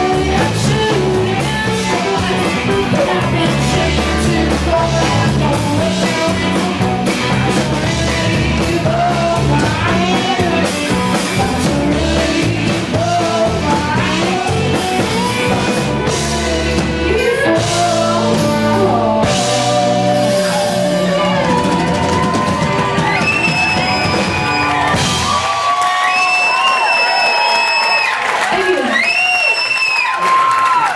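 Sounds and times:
woman singing: 0:00.0 - 0:21.7
live rock band playing: 0:00.0 - 0:27.1.

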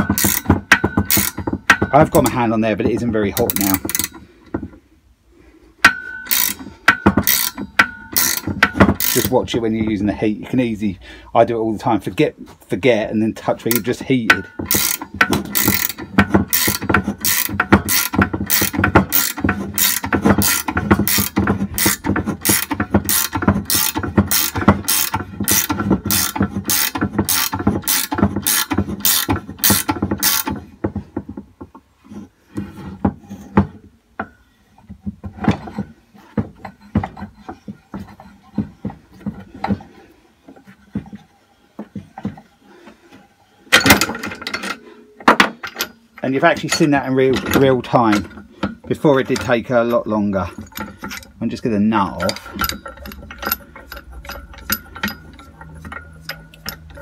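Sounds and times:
ratcheting spanner clicking: 0:00.0 - 0:01.8, 0:03.4 - 0:04.2, 0:05.9 - 0:09.3, 0:13.7 - 0:30.6, 0:52.2 - 0:57.0.

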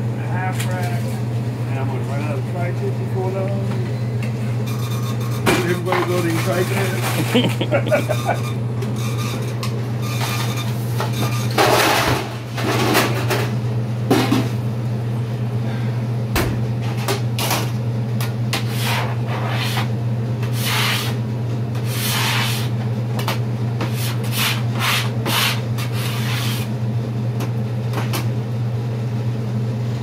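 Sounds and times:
steady low hum: 0:00.0 - 0:30.0
scraper on plastic cutting board: 0:18.6 - 0:19.9, 0:20.5 - 0:21.2, 0:21.8 - 0:22.7, 0:23.9 - 0:26.7.

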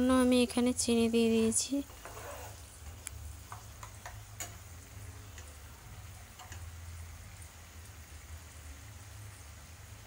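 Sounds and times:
sauce sizzling in oil: 0:00.0 - 0:10.0
spatula clicking against pan: 0:02.9 - 0:04.6, 0:06.3 - 0:06.7.

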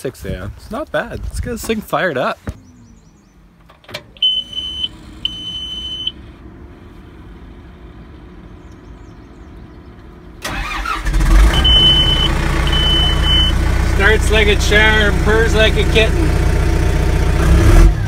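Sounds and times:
diesel engine cranking and running: 0:03.7 - 0:18.0
warning buzzer beeps: 0:11.5 - 0:13.6.

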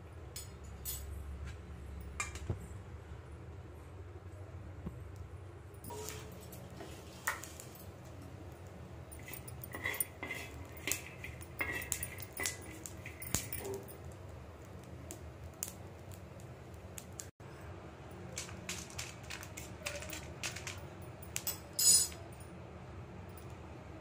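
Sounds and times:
steady low hum: 0:00.0 - 0:24.0
metal spoon scraping griddle: 0:05.9 - 0:08.2, 0:09.1 - 0:13.9, 0:21.7 - 0:22.2
nuts rattling: 0:09.1 - 0:14.0, 0:18.2 - 0:22.3.

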